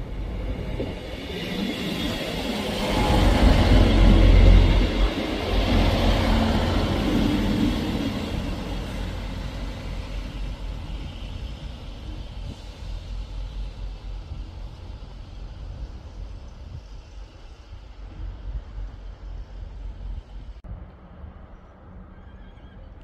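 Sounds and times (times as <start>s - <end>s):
diesel train rumbling away: 0.0s - 22.2s.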